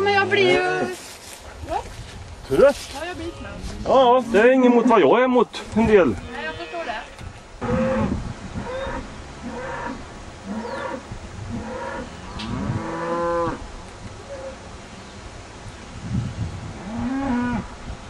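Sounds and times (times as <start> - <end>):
cattle mooing: 6.1 - 13.6.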